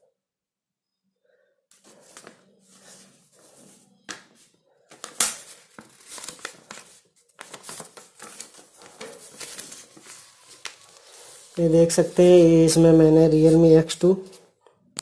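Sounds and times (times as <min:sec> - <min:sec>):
packaging crinkling and rustling: 0:04.9 - 0:11.6.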